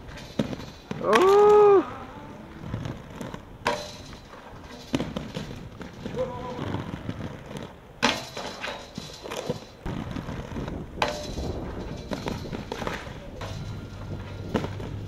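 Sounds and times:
skateboard snaps and impacts: 0:00.0 - 0:01.8
skateboard wheels clattering on bricks: 0:00.0 - 0:15.0.

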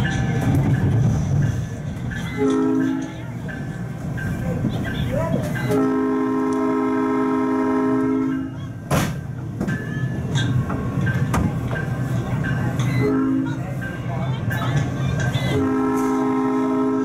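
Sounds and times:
train wheels rumbling on rails: 0:00.0 - 0:17.0
train horn blasts: 0:02.4 - 0:03.2, 0:05.6 - 0:08.6, 0:13.0 - 0:13.6, 0:15.5 - 0:17.0.

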